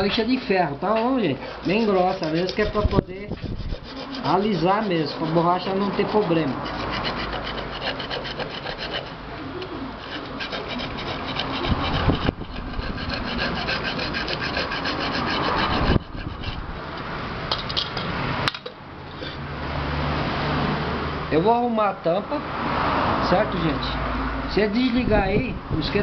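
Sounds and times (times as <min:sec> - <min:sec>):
sandpaper scraping on metal: 0:01.0 - 0:09.2, 0:10.0 - 0:16.6.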